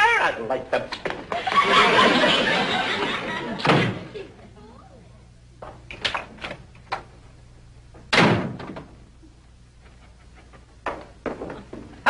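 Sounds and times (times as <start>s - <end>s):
wooden door slamming: 8.1s - 8.9s.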